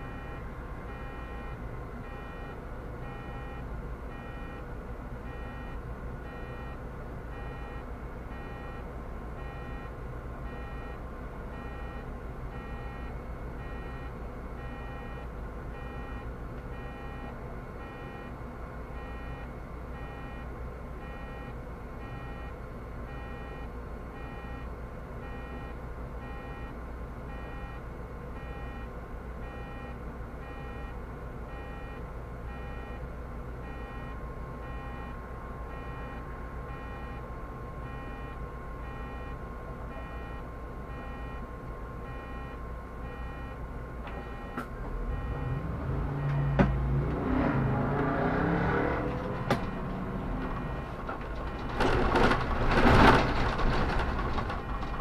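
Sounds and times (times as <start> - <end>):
bus engine rumbling: 0.0 - 55.0
short electronic beeps: 33.7 - 37.2, 37.9 - 41.4, 42.1 - 46.6, 50.6 - 51.0.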